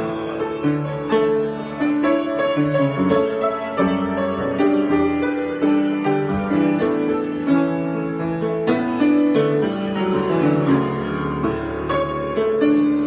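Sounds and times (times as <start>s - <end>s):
grand piano playing chords: 0.0s - 13.0s.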